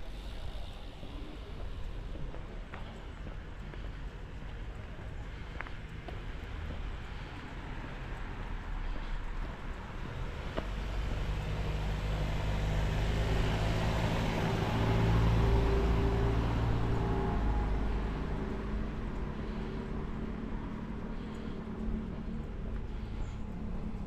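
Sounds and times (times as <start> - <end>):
car driving past: 9.9 - 24.0.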